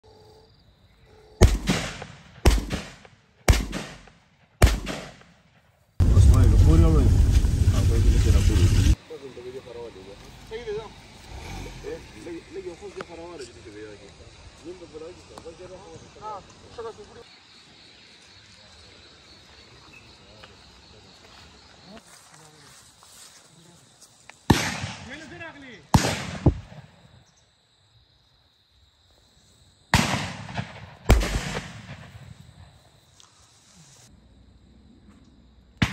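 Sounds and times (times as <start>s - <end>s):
insects chirring: 0.0s - 35.9s
shotgun shots: 1.4s - 5.5s, 24.5s - 25.3s, 25.9s - 26.9s, 29.9s - 32.4s.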